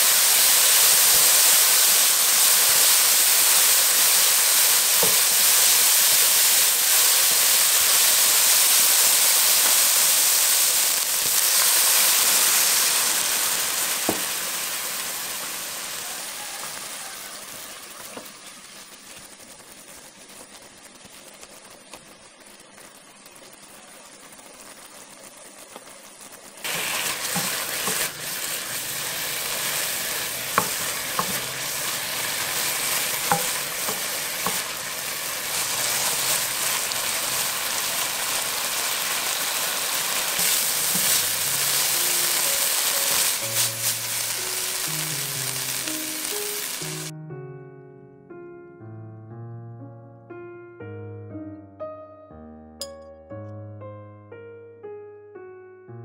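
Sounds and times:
food sizzling in a wok: 0:00.0 - 0:47.1
spatula scraping pan: 0:26.7 - 0:44.9.

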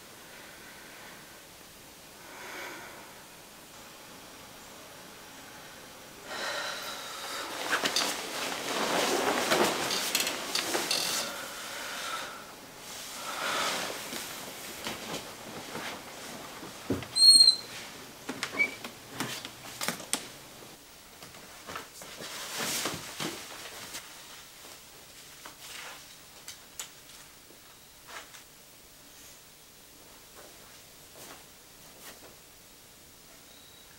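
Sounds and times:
bedclothes rustling: 0:06.4 - 0:12.0, 0:12.8 - 0:20.4, 0:21.2 - 0:26.1
door squeak: 0:17.1 - 0:17.7, 0:18.5 - 0:18.8.

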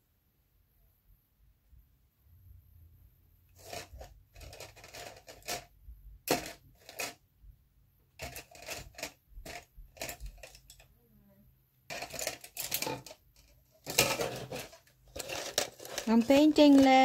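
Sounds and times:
paintbrush tapping and scratching: 0:14.2 - 0:17.0.

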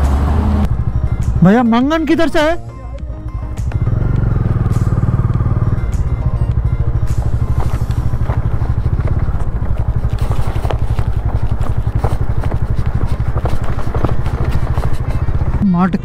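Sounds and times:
motorcycle engine running: 0:00.0 - 0:16.0
knocks and rattles on stony ground: 0:05.8 - 0:16.0.

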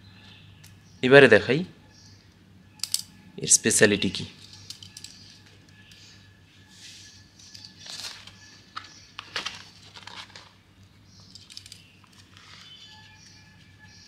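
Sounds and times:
notebook pages rustling: 0:07.7 - 0:10.6, 0:12.2 - 0:13.7.

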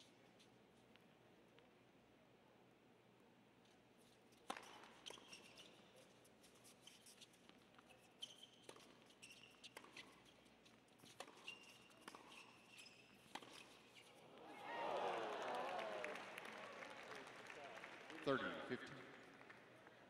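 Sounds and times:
shoes squeaking on hard court: 0:04.0 - 0:14.3.

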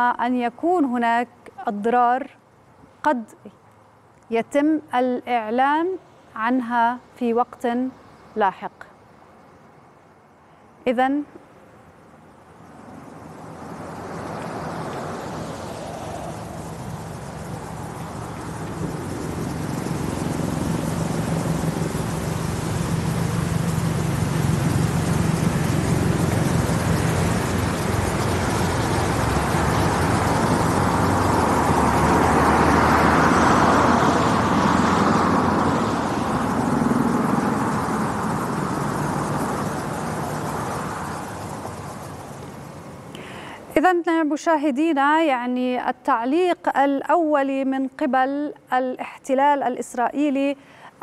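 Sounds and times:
passing engine rumble: 0:12.0 - 0:43.3.

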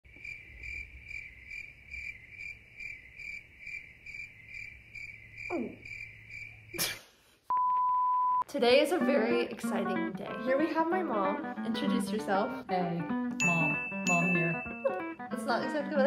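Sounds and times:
cricket chirping: 0:00.1 - 0:06.9.

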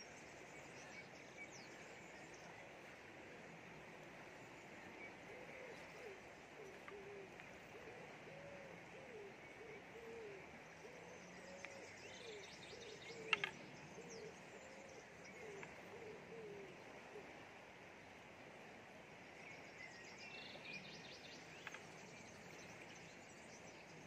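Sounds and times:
bird cooing: 0:04.7 - 0:17.5.

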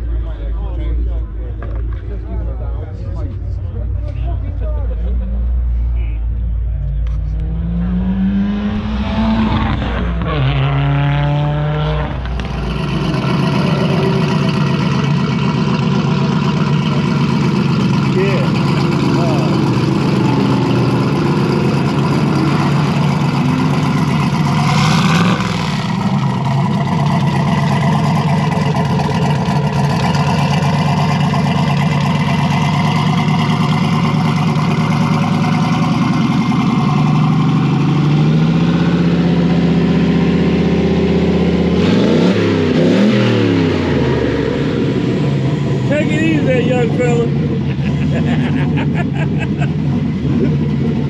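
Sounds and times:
car engine revving: 0:01.5 - 0:51.0.

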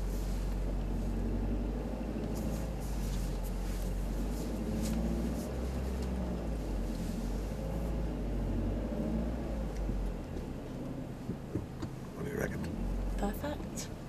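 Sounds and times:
car engine idling: 0:00.0 - 0:08.6.

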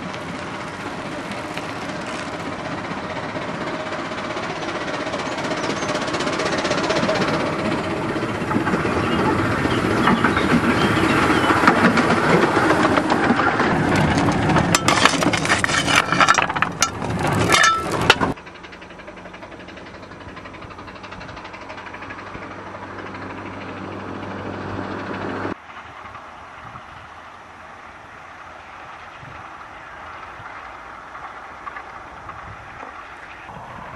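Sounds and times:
wheels clicking: 0:00.0 - 0:24.2
distant train low hum: 0:00.0 - 0:33.9
steam train passing: 0:00.0 - 0:33.9.

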